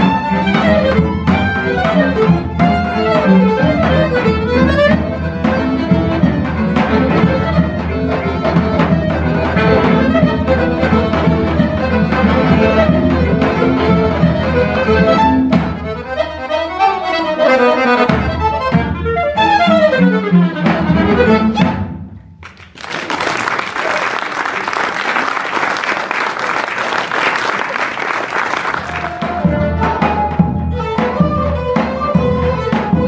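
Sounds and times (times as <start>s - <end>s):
clarinet: 0.0s - 21.9s, 28.6s - 33.0s
accordion: 0.0s - 22.0s, 28.5s - 33.0s
cello: 0.0s - 22.0s, 28.8s - 33.0s
violin: 0.0s - 22.0s, 28.7s - 33.0s
audience applause: 22.4s - 29.4s.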